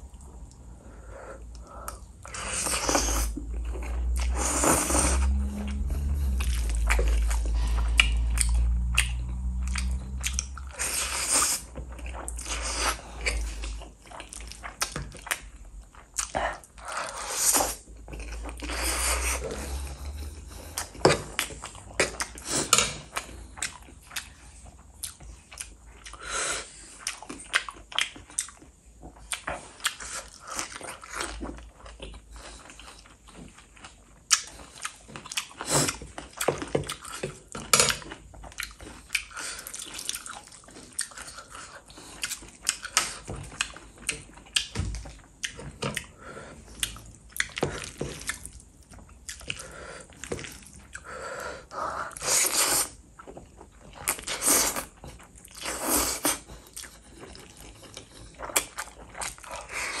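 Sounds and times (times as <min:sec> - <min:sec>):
wet chewing and smacking: 0:01.4 - 1:00.0.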